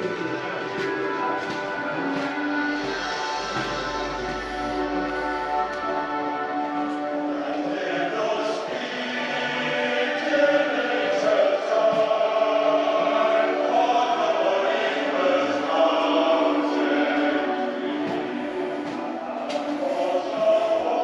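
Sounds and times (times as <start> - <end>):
choral singing: 0.0 - 21.0.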